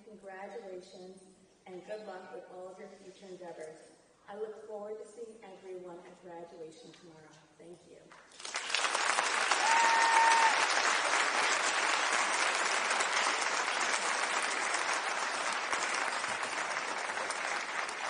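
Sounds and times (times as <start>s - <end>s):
audience applauding: 8.3s - 18.0s.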